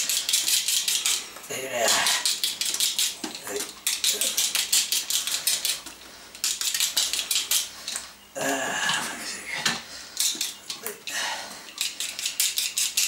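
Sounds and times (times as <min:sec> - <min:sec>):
blade scraping potato skin: 0:00.0 - 0:08.0, 0:11.8 - 0:13.0.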